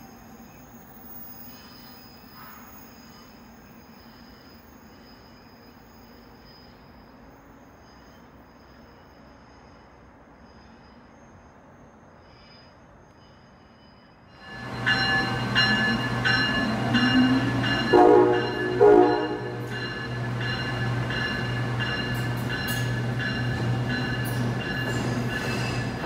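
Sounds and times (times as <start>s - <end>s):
locomotive bell ringing: 13.9s - 26.0s
train horn blasts: 16.7s - 20.0s.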